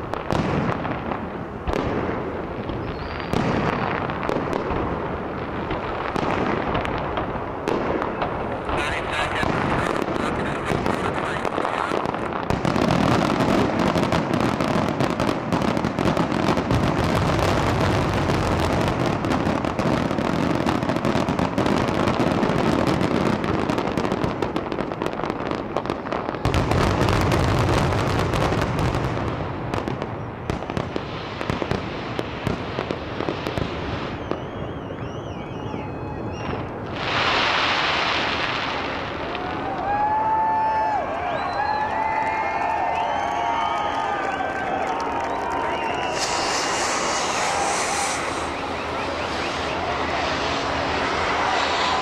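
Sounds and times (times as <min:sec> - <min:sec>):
fireworks crackling and popping: 0:00.0 - 0:52.0
firework whistle: 0:01.8 - 0:04.9, 0:07.9 - 0:24.2, 0:32.4 - 0:52.0.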